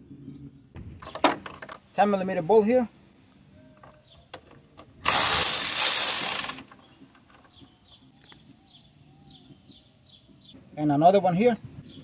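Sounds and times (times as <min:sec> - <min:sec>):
ratchet wrench spinning out bolt: 0:05.0 - 0:06.8.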